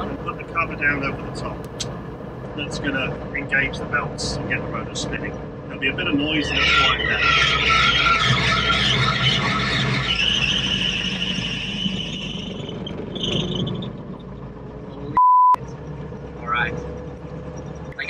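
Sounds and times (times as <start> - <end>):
loud steady beep: 15.2 - 15.6.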